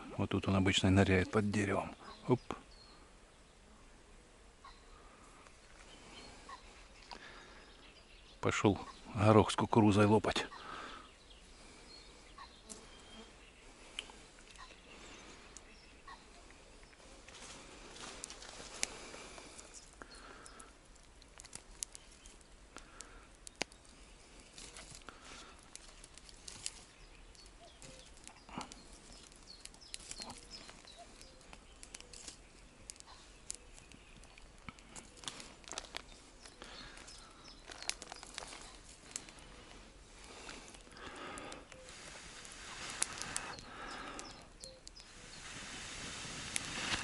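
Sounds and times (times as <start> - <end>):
campfire crackling and popping: 13.7 - 47.0
sticks shifted in embers: 16.5 - 47.0.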